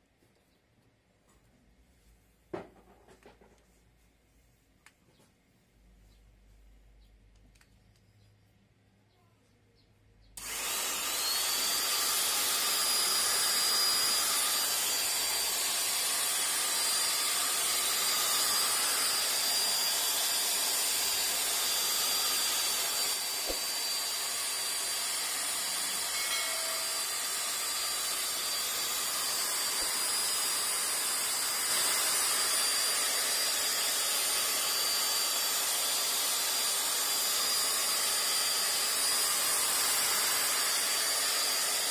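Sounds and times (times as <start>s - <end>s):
electric drill whining: 10.4s - 41.9s.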